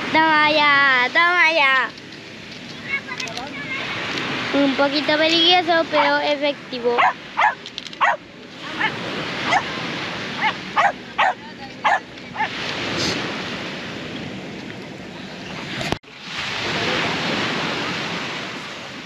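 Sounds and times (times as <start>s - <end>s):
surf: 0.0s - 19.0s
wind: 0.0s - 19.0s
dog barking sharp yips: 7.0s - 8.2s, 10.4s - 12.5s.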